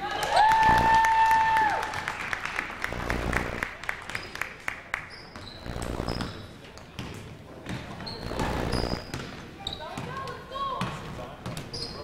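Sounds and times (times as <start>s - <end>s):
people clapping: 0.0s - 5.2s
basketball bouncing: 5.4s - 11.7s.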